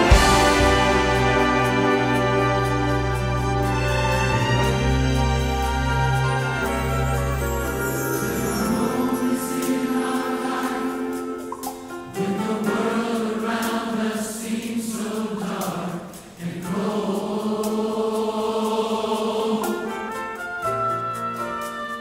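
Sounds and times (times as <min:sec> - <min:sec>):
strings: 0:00.0 - 0:21.4
piano: 0:00.0 - 0:22.0
vocalists singing in harmony: 0:07.7 - 0:20.4.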